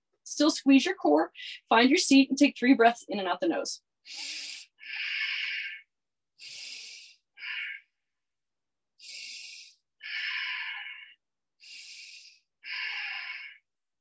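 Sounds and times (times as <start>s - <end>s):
woman breathing through nose: 4.0s - 5.8s, 6.4s - 7.9s, 9.0s - 13.6s.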